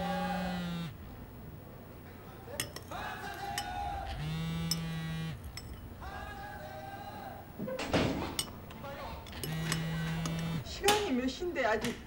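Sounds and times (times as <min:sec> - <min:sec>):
spoon clinking against bowl: 0:02.6 - 0:03.8.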